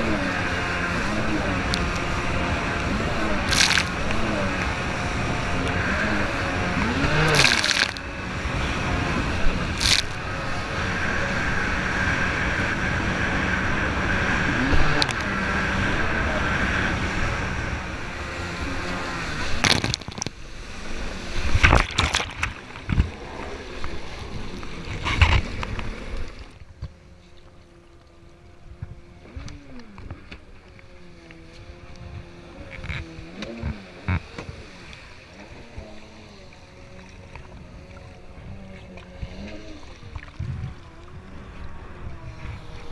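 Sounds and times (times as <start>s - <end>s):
hull slapping water: 0.0s - 42.9s
jet ski engine running: 0.0s - 42.9s
water spray rushing: 0.8s - 11.8s.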